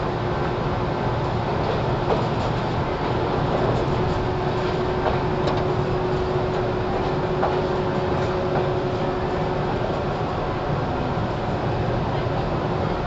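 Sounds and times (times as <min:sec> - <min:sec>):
train motors and wheels rumbling: 0:00.0 - 0:13.0.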